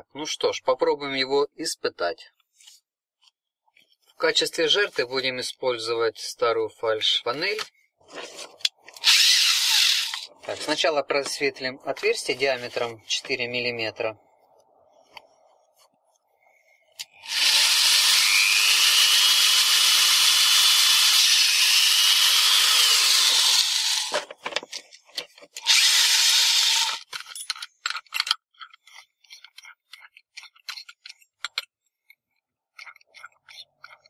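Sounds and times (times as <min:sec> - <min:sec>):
electric drill drilling metal: 0:09.0 - 0:10.3, 0:17.2 - 0:24.2, 0:25.6 - 0:27.1.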